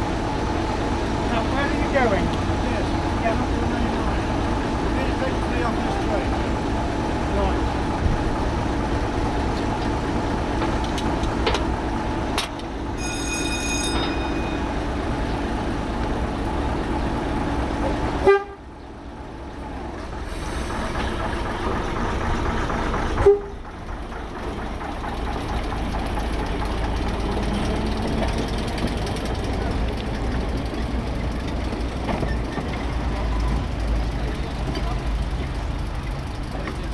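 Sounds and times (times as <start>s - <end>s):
diesel locomotive engine idling: 0.0s - 36.9s
high-pitched toot: 13.0s - 14.8s.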